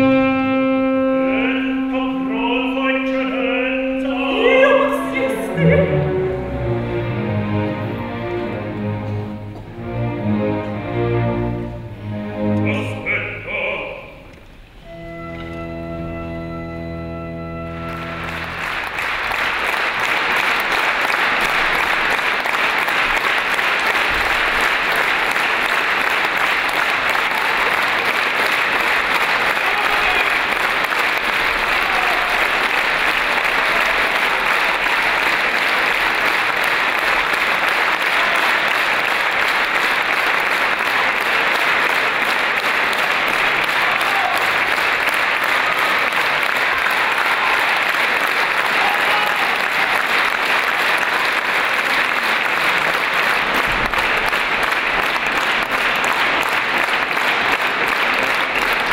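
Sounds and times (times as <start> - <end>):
audience applauding: 14.9 - 58.9.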